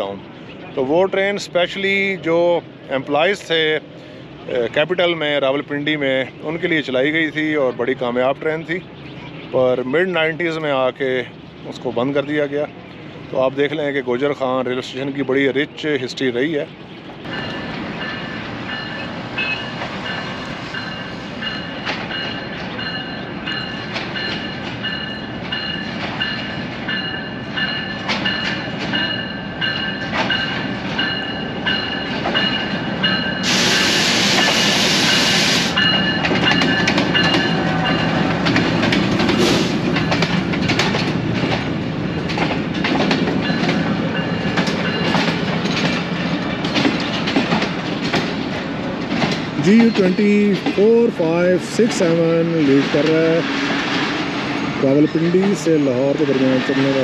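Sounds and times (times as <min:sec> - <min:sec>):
high metallic ringing: 0:17.3 - 0:33.5
train wheels clicking over rail joints: 0:17.3 - 0:54.7
loud hissing burst: 0:33.4 - 0:35.8, 0:39.4 - 0:40.0.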